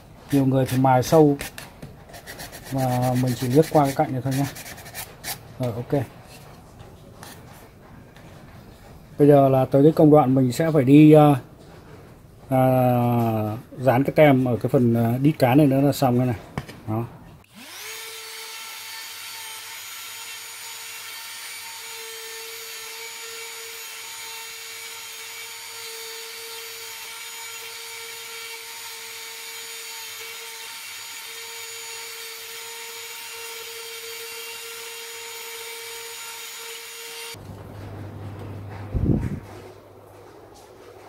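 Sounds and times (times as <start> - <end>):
drill press motor whining: 17.5 - 18.0
drill bit cutting into wood: 17.5 - 37.4.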